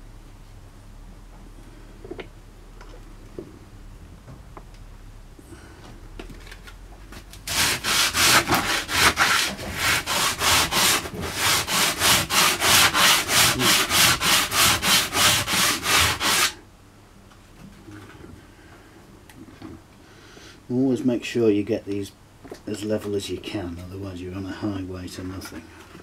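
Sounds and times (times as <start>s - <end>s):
sandpaper rubbing on wood: 7.5s - 16.6s.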